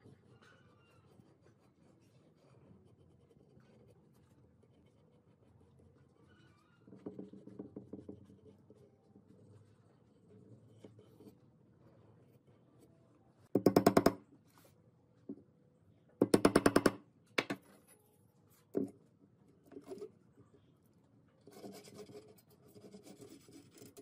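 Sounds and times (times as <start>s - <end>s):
hammer striking nails into wood: 13.6s - 14.2s, 16.2s - 17.6s.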